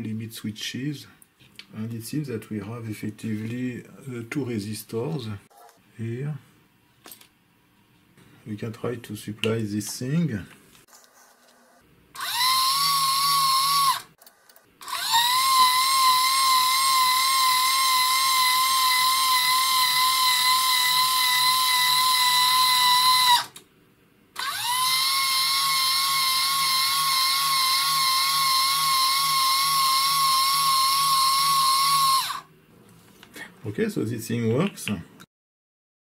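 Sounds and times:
electric motor whining: 12.2s - 14.1s, 14.8s - 23.5s, 24.4s - 32.5s.

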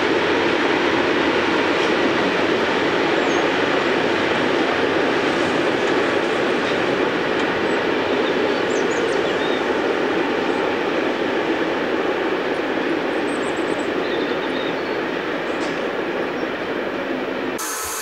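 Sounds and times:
train wheels rumbling on bridge: 0.0s - 17.6s.

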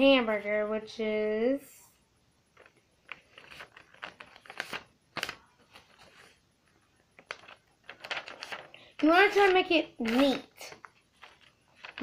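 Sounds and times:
paper rustling and crackling: 2.6s - 6.4s, 7.2s - 12.0s.

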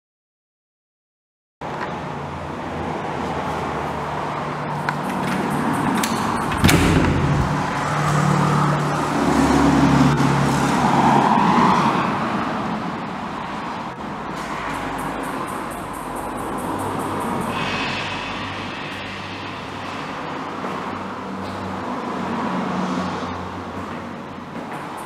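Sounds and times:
street traffic: 1.6s - 25.0s
vehicle passing: 1.9s - 25.0s
sharp knock: 6.0s - 8.2s.

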